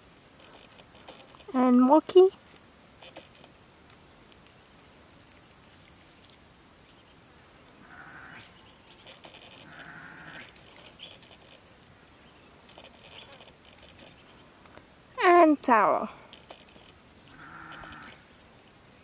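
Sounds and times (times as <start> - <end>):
infant monkey bleating cries: 17.3 - 18.2.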